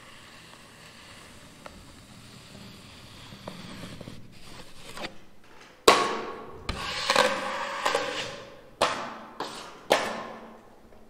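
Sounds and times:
drywall knife scraping compound: 0:00.0 - 0:05.3, 0:05.9 - 0:10.6
metal scrapes and knocks: 0:04.4 - 0:10.5.

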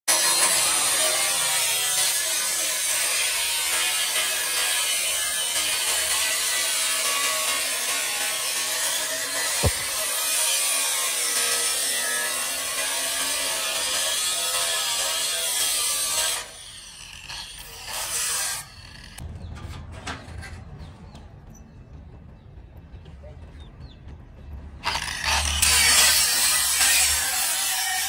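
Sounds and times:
angle grinder cutting steel: 0:00.1 - 0:19.2, 0:24.8 - 0:28.0.

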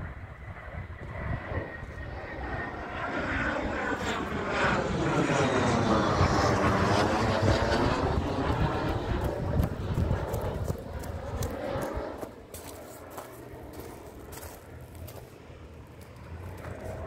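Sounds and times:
jet aircraft roaring overhead: 0:00.0 - 0:17.0.

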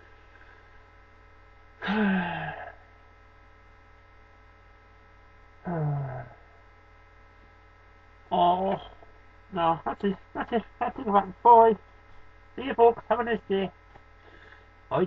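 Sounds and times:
electrical mains hum: 0:00.0 - 0:15.0
man making wordless sounds: 0:08.3 - 0:11.8, 0:12.6 - 0:13.8.

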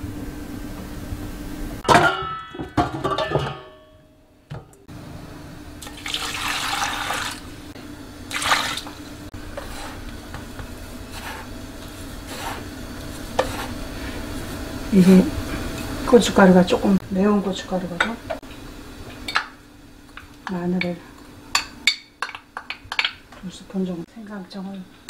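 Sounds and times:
metal bowl and pot clanking: 0:01.8 - 0:04.7, 0:19.2 - 0:23.2
water pouring and splashing: 0:05.8 - 0:07.5, 0:08.3 - 0:09.0.

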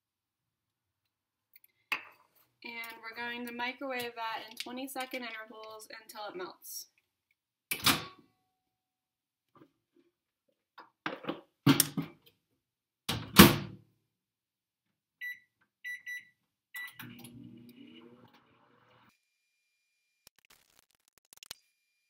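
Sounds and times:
keypad beeps: 0:15.2 - 0:17.0
microwave humming and whining: 0:16.9 - 0:19.1.

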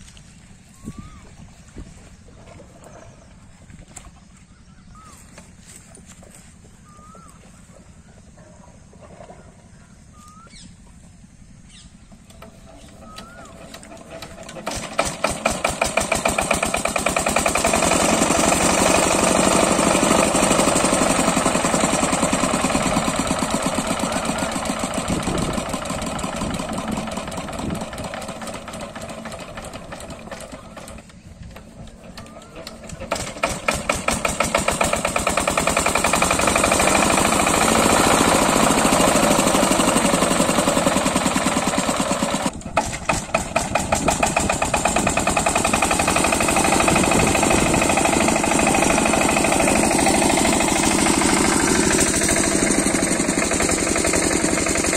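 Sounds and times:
diesel engine knocking: 0:13.2 - 0:54.9.

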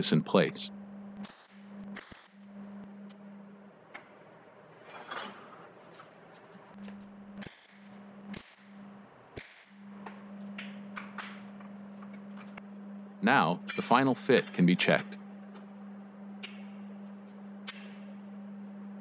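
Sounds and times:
steady low hum: 0:00.0 - 0:19.0
welding arc crackling hiss: 0:01.2 - 0:02.5, 0:07.4 - 0:08.8, 0:09.4 - 0:09.8.

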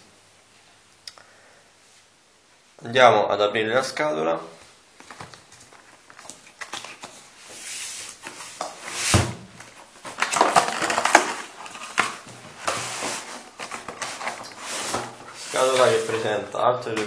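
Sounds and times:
cardboard scraping and rustling: 0:06.1 - 0:16.4.

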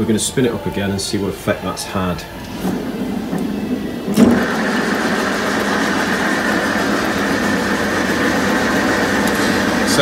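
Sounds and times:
balancing machine whirring: 0:02.3 - 0:10.0.

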